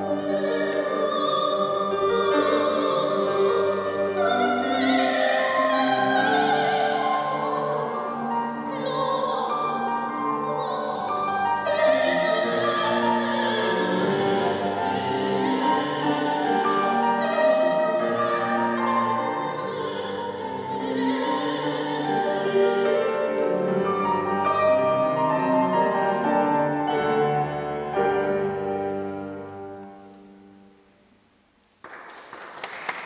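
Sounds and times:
woman singing classical: 0.0s - 30.7s
grand piano: 0.0s - 33.0s.

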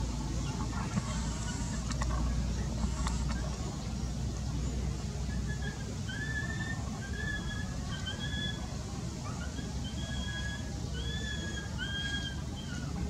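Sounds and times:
steady low rumble: 0.0s - 13.0s
short thin whistled calls: 5.2s - 13.0s.

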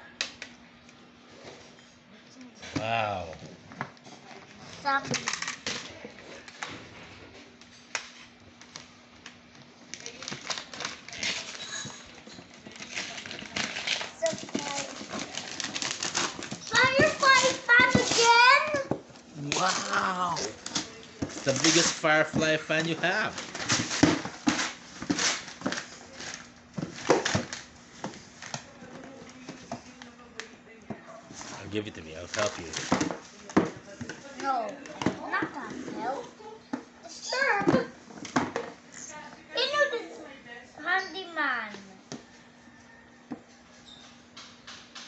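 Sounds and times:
wrapping paper tearing and crinkling: 9.8s - 28.6s, 31.3s - 33.4s.

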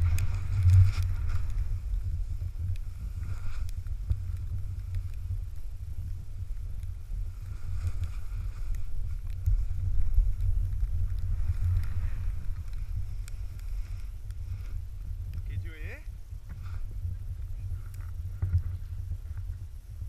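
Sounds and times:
snowboard edge scraping snow: 0.0s - 2.4s, 3.0s - 3.8s
wind rumble on microphone: 0.0s - 20.0s.

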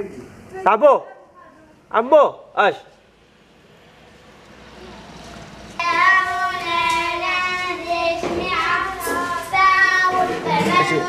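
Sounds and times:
children singing: 5.8s - 11.0s.

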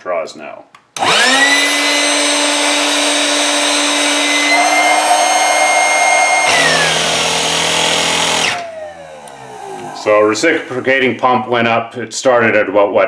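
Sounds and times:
air pump motor whining: 1.0s - 11.4s
low rapid pump throb: 2.0s - 8.7s.

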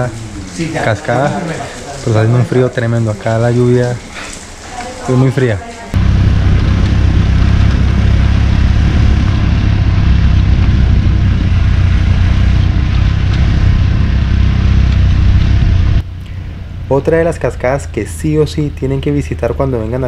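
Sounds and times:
wind and road noise: 5.9s - 20.0s
motorcycle engine running: 6.0s - 20.0s.

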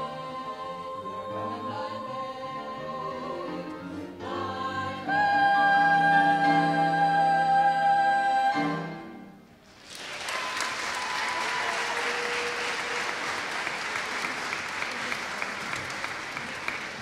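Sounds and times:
vocal ensemble holding chord: 0.0s - 9.5s
audience applause: 9.7s - 17.0s.

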